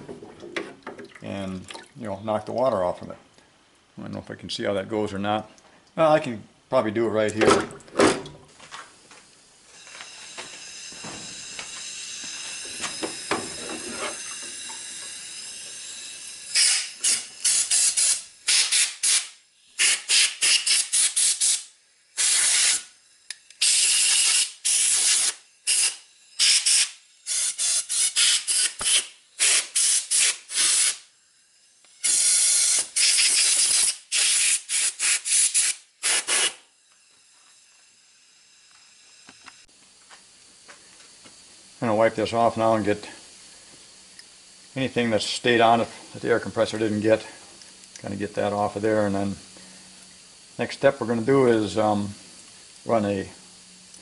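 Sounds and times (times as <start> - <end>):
compressed air blow gun hissing: 10.2 - 31.1, 31.9 - 36.7.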